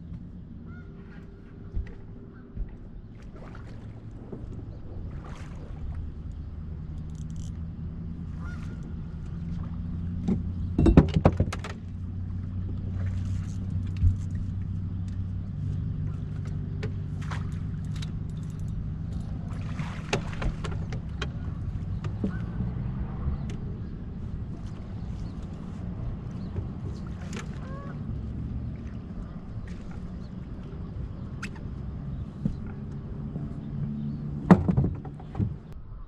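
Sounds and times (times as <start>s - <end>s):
boat motor idling: 0.0s - 35.8s
knocks on boat: 10.2s - 11.9s, 19.7s - 22.6s, 34.4s - 35.7s.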